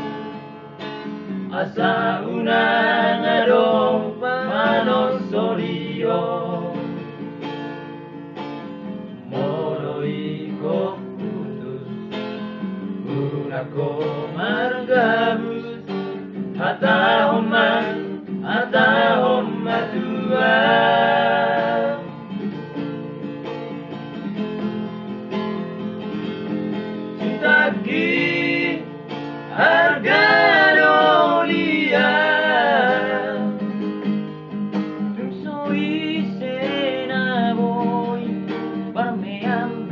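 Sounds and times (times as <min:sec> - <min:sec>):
nylon-string guitar strumming: 0:00.0 - 0:39.9
men singing together: 0:01.5 - 0:07.0, 0:09.3 - 0:12.0, 0:13.1 - 0:22.1, 0:27.2 - 0:28.9, 0:29.5 - 0:33.8, 0:35.2 - 0:39.9.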